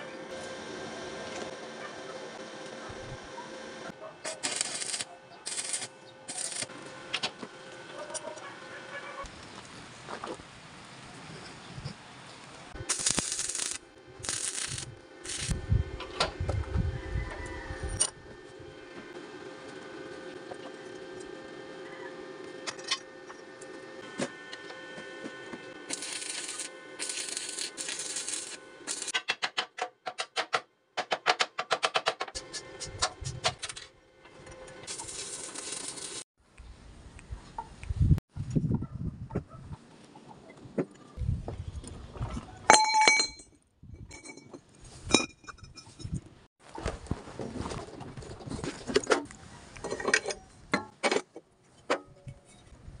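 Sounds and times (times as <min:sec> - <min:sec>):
steel pipes clanging on concrete: 0:42.7 - 0:43.5.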